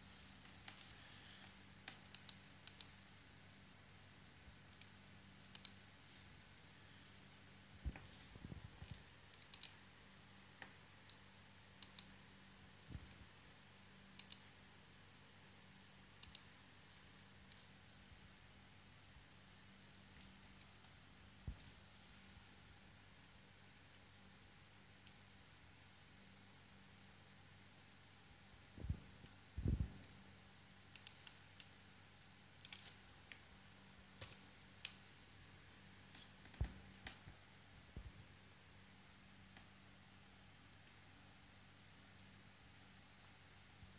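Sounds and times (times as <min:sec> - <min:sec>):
faint steady hum: 0:00.0 - 0:43.9
computer mouse clicking: 0:01.9 - 0:03.0, 0:04.7 - 0:05.8, 0:08.8 - 0:09.8, 0:11.8 - 0:12.2, 0:14.1 - 0:14.5, 0:16.2 - 0:16.5, 0:30.9 - 0:31.7, 0:32.6 - 0:33.0, 0:42.0 - 0:42.4
mouse buttons double-clicking: 0:05.4 - 0:05.8, 0:09.3 - 0:09.8, 0:11.8 - 0:12.2, 0:14.2 - 0:14.5, 0:30.9 - 0:31.7.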